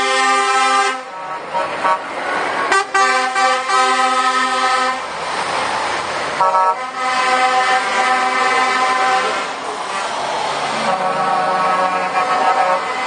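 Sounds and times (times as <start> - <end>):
truck horn blasts: 0.0 - 5.1, 6.4 - 13.0
lorry passing close by: 4.5 - 13.0.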